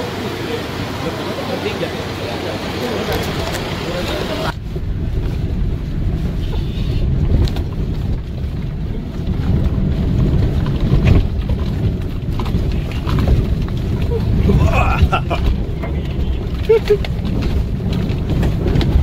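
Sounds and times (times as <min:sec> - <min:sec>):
engine and tyres rumbling: 0:00.0 - 0:19.0.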